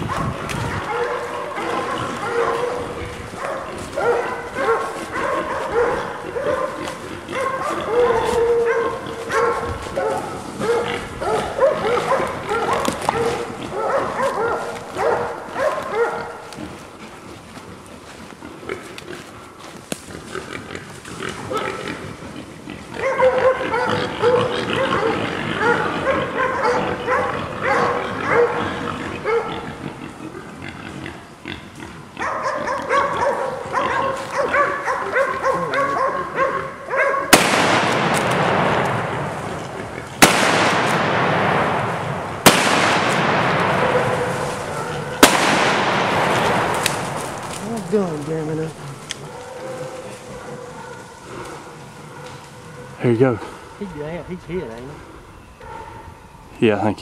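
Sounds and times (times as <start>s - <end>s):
hogs squealing: 0.0s - 18.0s, 20.1s - 40.7s
dogs barking and baying: 0.0s - 57.0s
rifle shots: 37.3s - 39.4s, 40.2s - 47.5s.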